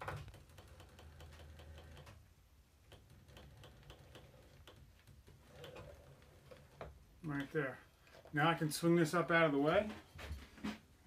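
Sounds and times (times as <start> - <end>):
faint mechanical ticking: 0.0 - 7.8.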